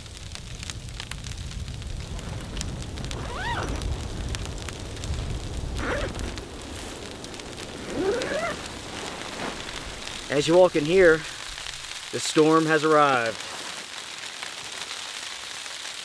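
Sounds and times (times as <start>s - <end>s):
low rumble of wind: 0.0s - 12.3s
sleet pattering on tent fabric: 1.7s - 16.0s.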